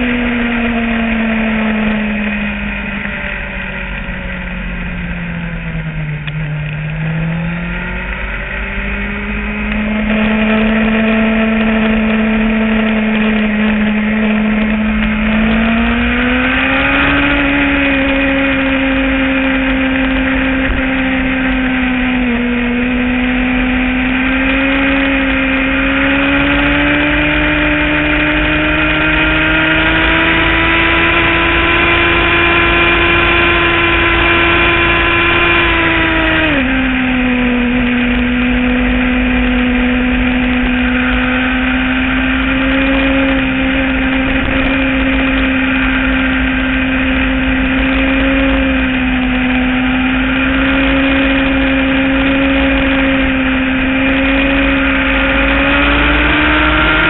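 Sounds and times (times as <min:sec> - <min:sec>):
motorcycle engine running: 0:00.0 - 0:57.0
wind rumble on microphone: 0:00.0 - 0:57.0.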